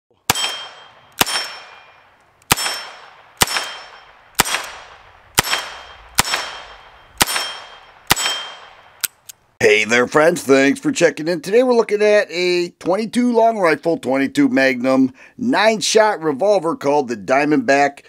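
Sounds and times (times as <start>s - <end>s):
revolver gunshots: 0.2s - 9.0s.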